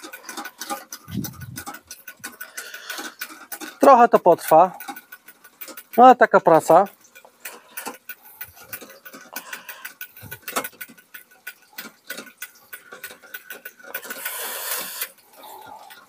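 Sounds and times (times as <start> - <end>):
fishing reel ticking: 0.0 - 16.0
short hiss: 14.1 - 15.2.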